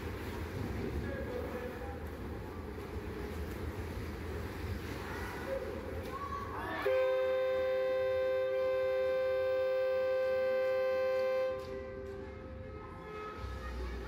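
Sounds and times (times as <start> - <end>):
two-tone horn blast: 6.9 - 14.0.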